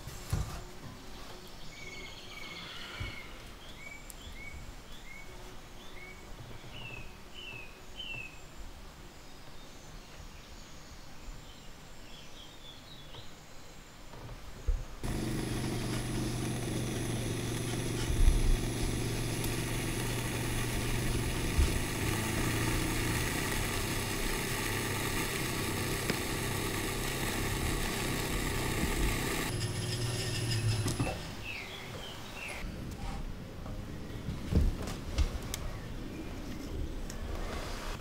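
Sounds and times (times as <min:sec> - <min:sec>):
high whine: 0:15.0 - 0:31.4
potter's wheel motor hum: 0:15.0 - 0:31.6.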